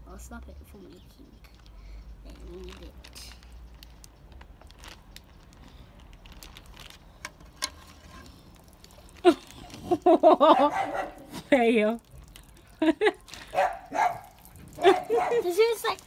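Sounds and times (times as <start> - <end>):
plastic bag rustling: 1.5 - 16.0
dog barking: 10.5 - 11.3, 13.5 - 15.6.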